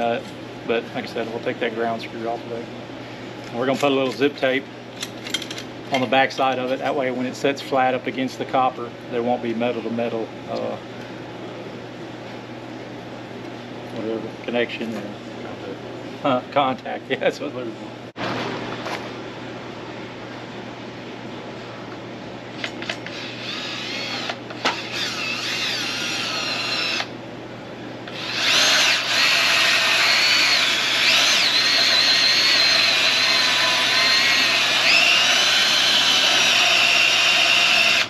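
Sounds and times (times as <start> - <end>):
drill hole saw cutting sheet metal: 23.0 - 27.1, 28.1 - 38.0.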